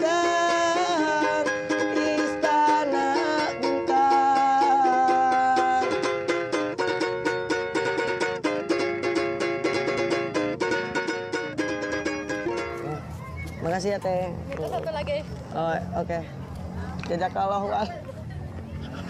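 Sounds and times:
person singing long notes: 0.0 - 6.6
ukulele strumming chords: 0.0 - 13.1.

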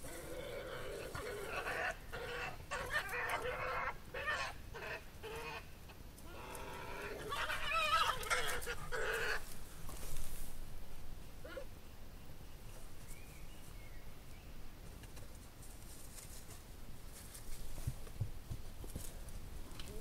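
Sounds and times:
badgers screaming and chattering: 0.0 - 9.6.

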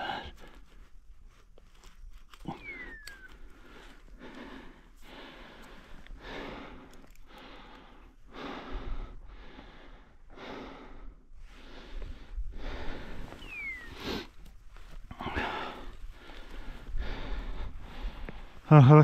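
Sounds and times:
person breathing hard: 0.0 - 0.9, 2.4 - 18.7
short falling whistle: 13.4 - 14.0.

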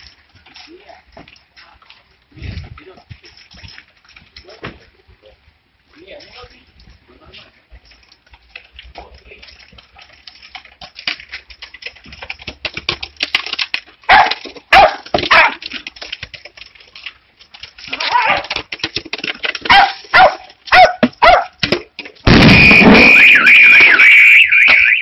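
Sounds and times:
small dog barking: 14.1 - 15.6, 19.7 - 21.6.

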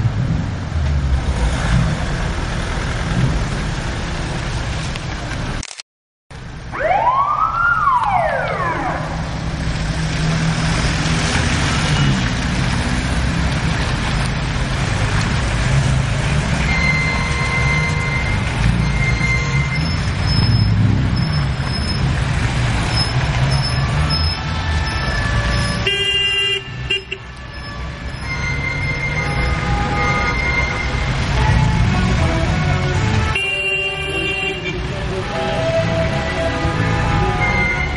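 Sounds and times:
siren sweep: 6.7 - 9.5
cars driving past: 6.8 - 37.9.

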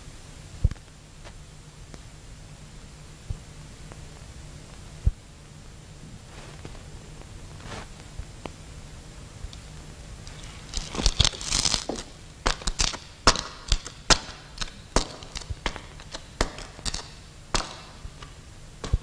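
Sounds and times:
crackly rustle: 3.3 - 19.0
footsteps on steps: 10.5 - 13.0.

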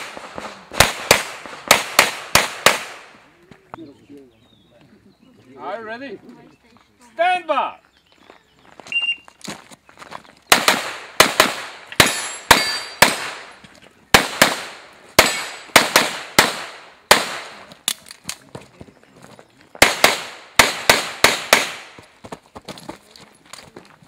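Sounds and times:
handgun shots echoing: 10.5 - 13.5.

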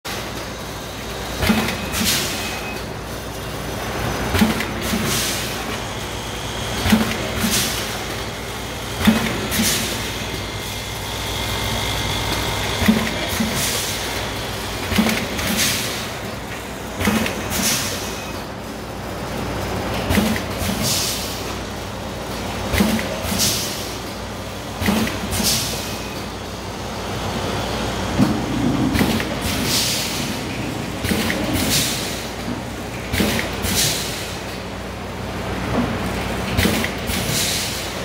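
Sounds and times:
machine motor hum: 2.9 - 38.0
sharp machine clacks: 12.3 - 18.4, 20.0 - 21.4, 22.7 - 23.9, 24.8 - 26.3
pneumatic air hisses: 20.6 - 21.4, 29.4 - 30.3, 37.1 - 37.9.

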